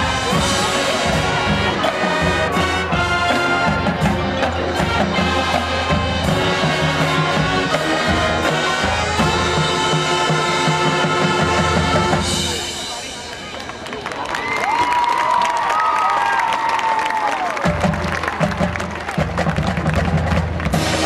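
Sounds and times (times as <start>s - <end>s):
marching band playing: 0.0s - 14.9s, 17.2s - 21.0s.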